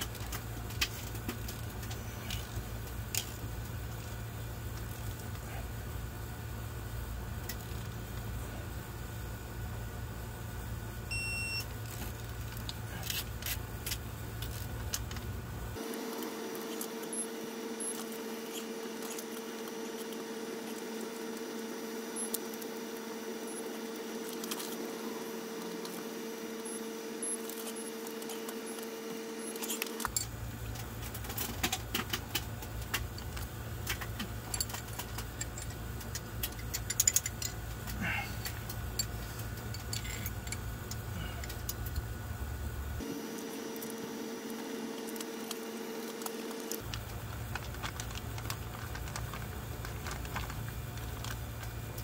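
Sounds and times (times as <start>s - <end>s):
steady hum: 0.0s - 52.0s
small metal parts clinking: 29.6s - 42.1s.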